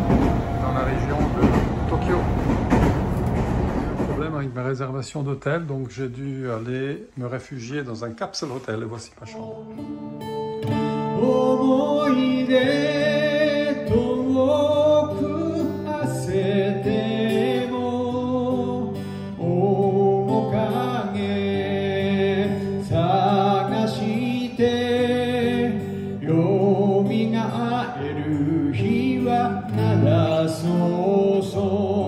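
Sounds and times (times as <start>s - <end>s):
acoustic guitar: 0.0s - 1.8s, 8.0s - 32.0s
man singing with vibrato: 9.0s - 9.9s, 10.8s - 32.0s.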